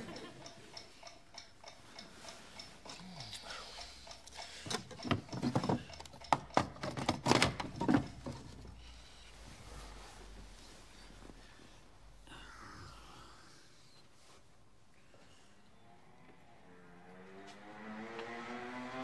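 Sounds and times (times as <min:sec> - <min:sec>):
alarm clock ticking: 0:00.0 - 0:06.7.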